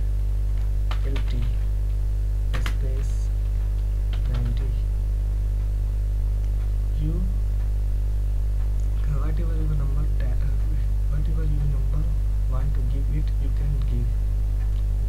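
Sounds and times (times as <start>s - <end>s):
electrical mains hum: 0.0s - 15.0s
keyboard keystrokes: 2.5s - 3.0s.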